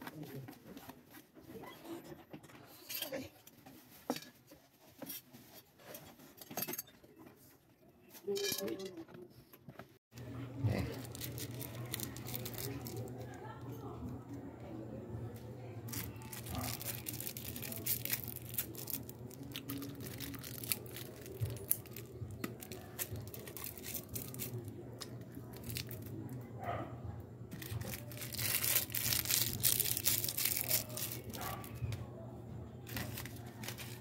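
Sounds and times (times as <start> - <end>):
plastic packaging crinkling: 10.7 - 13.6, 15.8 - 26.4, 27.5 - 31.9, 32.8 - 34.0.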